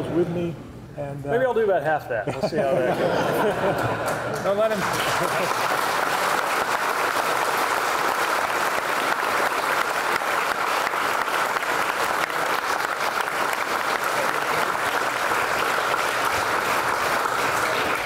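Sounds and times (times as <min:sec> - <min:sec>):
crowd applauding: 0:03.8 - 0:18.0.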